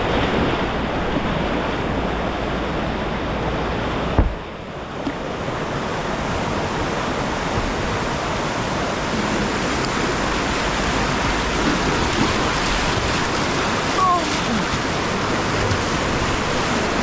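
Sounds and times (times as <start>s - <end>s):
river rapids rushing: 0.0s - 17.0s.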